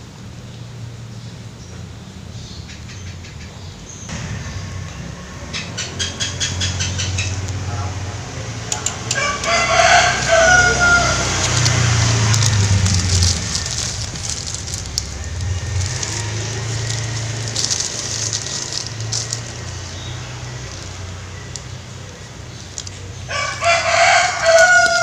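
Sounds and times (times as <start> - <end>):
plastic bag crinkling: 9.2 - 25.0.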